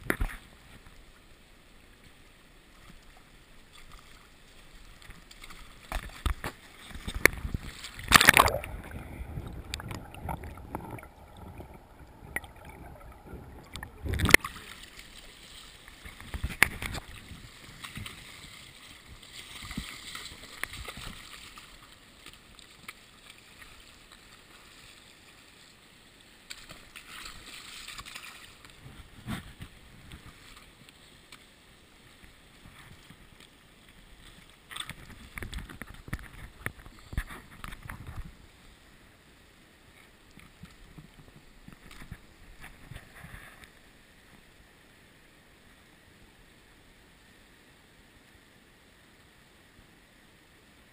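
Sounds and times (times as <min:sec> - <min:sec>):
muffled river water gurgling: 0:00.0 - 0:50.9
sharp knocks or splashes: 0:05.4 - 0:14.7.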